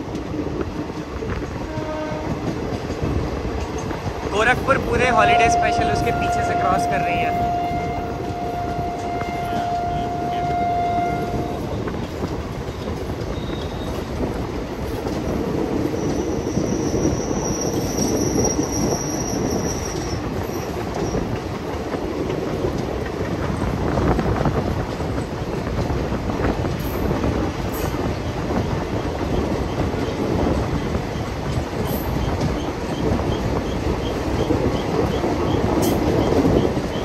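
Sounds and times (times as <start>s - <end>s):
train wheels rumbling on rails: 0.0s - 37.0s
locomotive horn: 1.7s - 2.5s, 5.1s - 11.7s
high wheel squeal: 16.0s - 21.3s.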